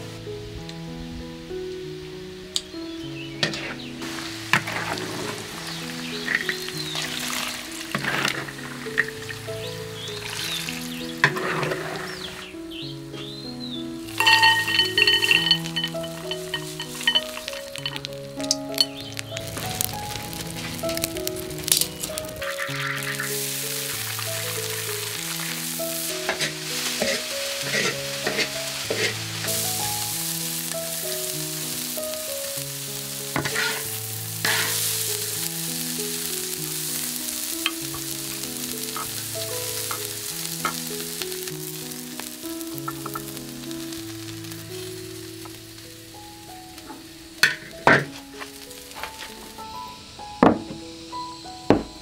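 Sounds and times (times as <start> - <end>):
vegetables sizzling in a wok: 2.1 - 52.0
metal spatula scraping wok: 14.1 - 18.1, 22.4 - 29.7, 33.4 - 35.0.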